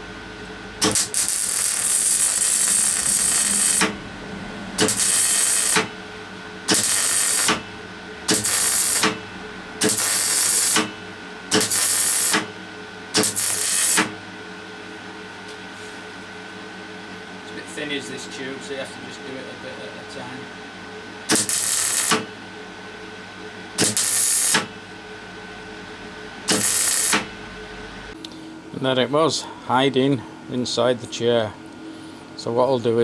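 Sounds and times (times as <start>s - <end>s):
welder arc buzzing: 0.0s - 15.2s, 21.2s - 28.2s.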